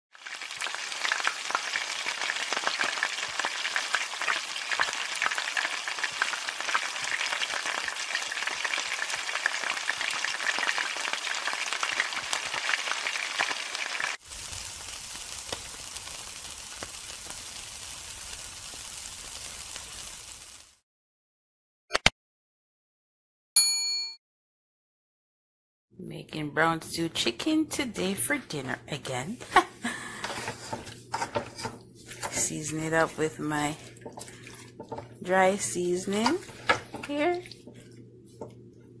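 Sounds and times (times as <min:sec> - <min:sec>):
hot oil sizzling in a wok: 0:00.1 - 0:20.8.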